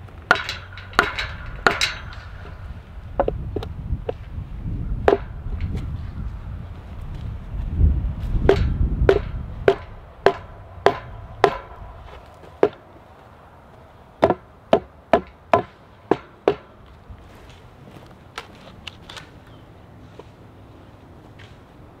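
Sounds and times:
sharp blows on wood: 0:05.0 - 0:05.9, 0:08.3 - 0:12.8, 0:14.2 - 0:16.8.

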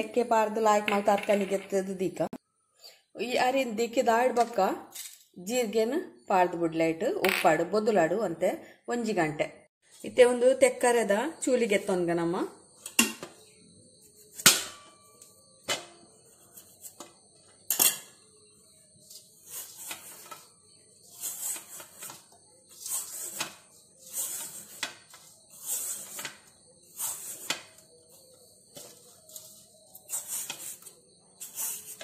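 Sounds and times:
peeler scraping cucumber skin: 0:21.1 - 0:24.8.

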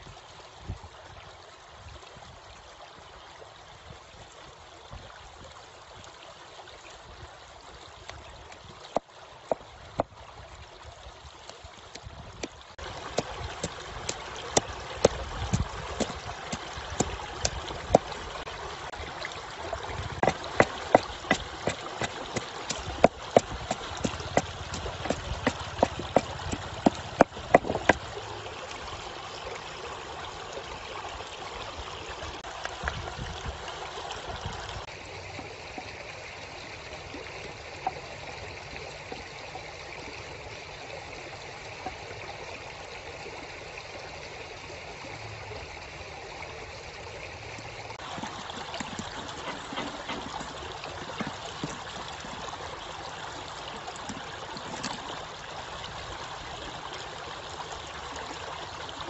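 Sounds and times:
river water flowing: 0:00.0 - 0:59.0
wooden pestle pounding in mortar: 0:20.2 - 0:28.0.

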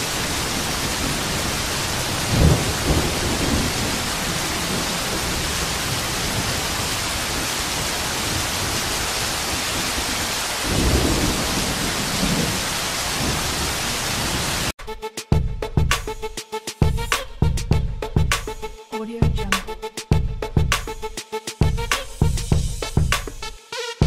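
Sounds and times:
heavy rain hissing: 0:00.0 - 0:14.7.

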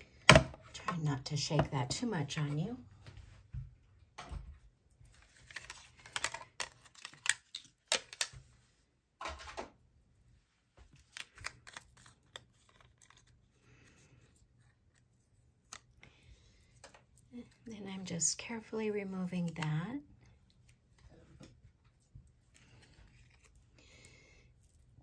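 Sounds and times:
paper rustle: 0:05.1 - 0:08.3.

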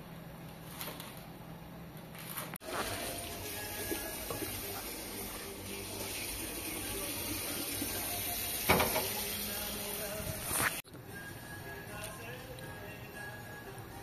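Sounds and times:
tap water running into colander: 0:02.9 - 0:10.4.

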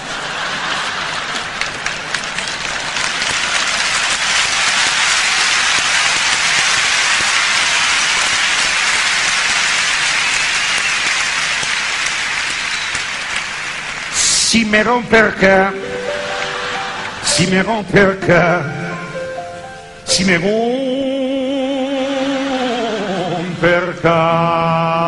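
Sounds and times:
audience applauding: 0:00.0 - 0:17.7.

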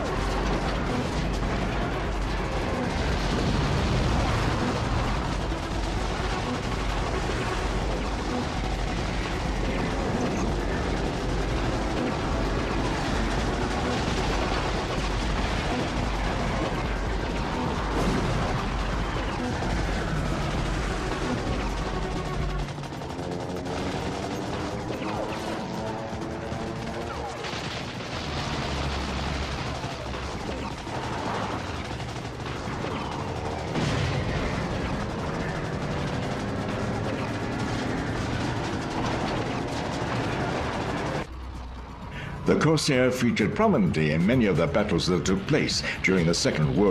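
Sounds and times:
explosions: 0:00.0 - 0:22.6, 0:26.5 - 0:41.3
heavy gunfire: 0:00.0 - 0:41.3
machine-gun fire: 0:00.0 - 0:41.3
aircraft engines droning: 0:00.0 - 0:46.9.

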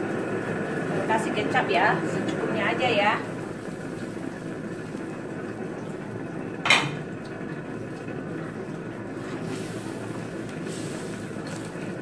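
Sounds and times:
meat and sauce simmering in a wok: 0:00.0 - 0:02.2, 0:02.9 - 0:12.0
kitchenware clinking on metal: 0:06.6 - 0:07.1.

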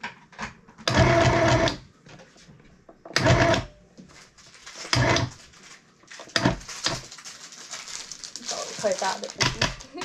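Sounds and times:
toy sewing machine stitching: 0:00.9 - 0:01.8, 0:03.2 - 0:03.7, 0:04.9 - 0:05.3.

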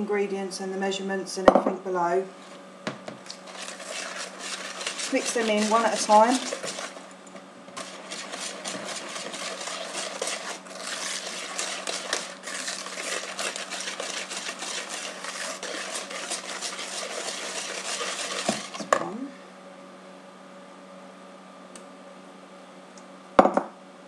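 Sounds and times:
whisk beating in plastic bowl: 0:03.3 - 0:07.1, 0:07.7 - 0:19.0
whisk knock: 0:03.5 - 0:07.0, 0:07.8 - 0:18.9.

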